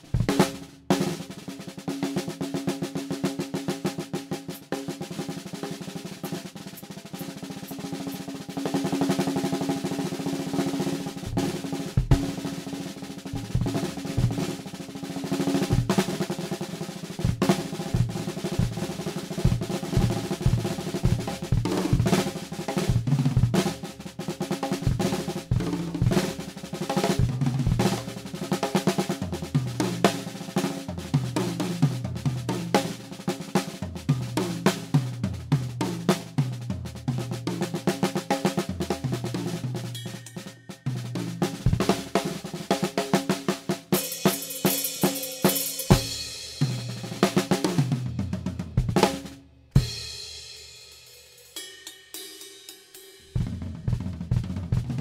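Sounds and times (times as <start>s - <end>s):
drum kit playing solo: 0.0s - 55.0s
ringing cymbal hit: 40.0s - 41.0s.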